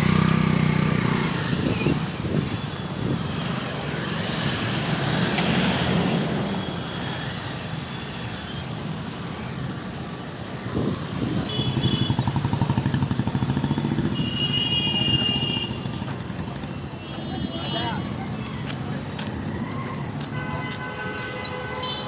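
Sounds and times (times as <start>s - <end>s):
vehicle engine: 0.0s - 8.0s, 8.8s - 17.0s
road noise: 0.0s - 22.0s.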